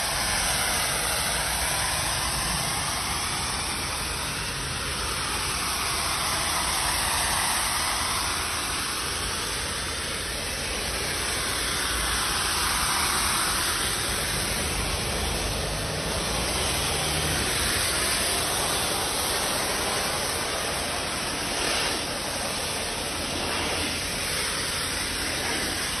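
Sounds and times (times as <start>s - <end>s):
steam jet hissing: 0.0s - 26.0s.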